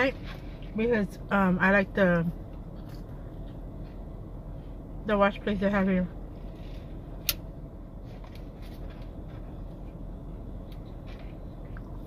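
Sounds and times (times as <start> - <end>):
low rumble inside car: 0.0 - 12.0
soft chewing sounds: 2.4 - 4.8.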